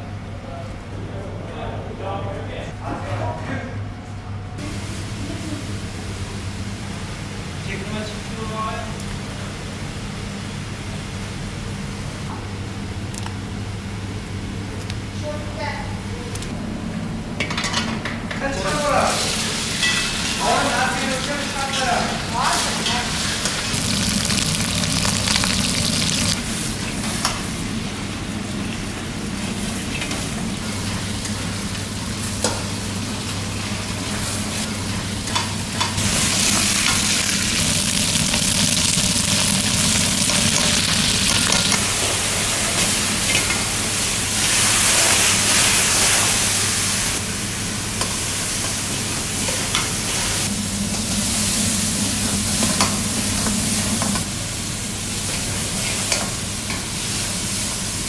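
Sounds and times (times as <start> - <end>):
food sizzling in hot oil: 22.4 - 26.9, 36.0 - 43.4.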